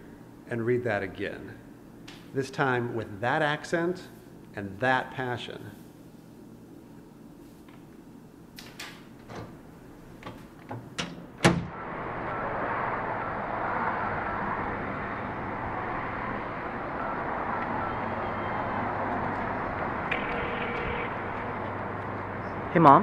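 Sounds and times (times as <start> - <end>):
outdoor background hum: 0.0 - 23.0
door banging shut: 10.3 - 11.8.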